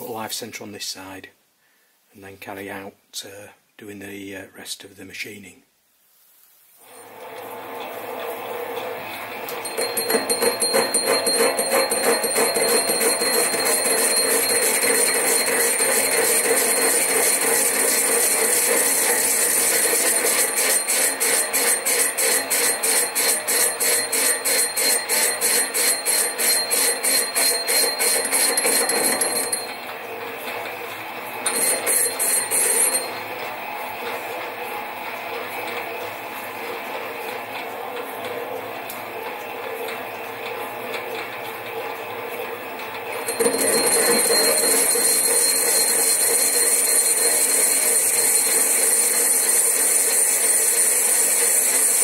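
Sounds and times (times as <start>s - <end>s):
lathe whining: 6.9s - 35.8s, 43.1s - 52.0s.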